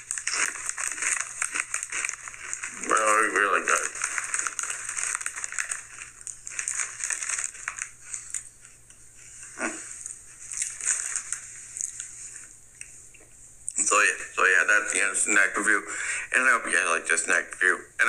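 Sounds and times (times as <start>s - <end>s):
chips crunching while chewed: 0.0s - 8.8s, 9.8s - 12.5s.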